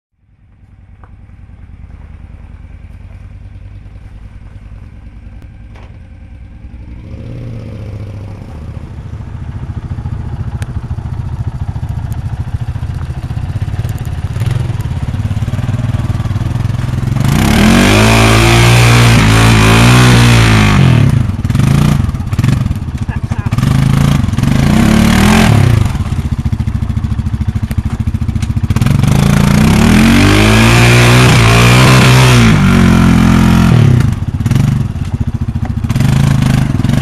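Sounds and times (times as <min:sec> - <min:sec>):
motorcycle engine rumbling: 0:00.1 - 0:37.0.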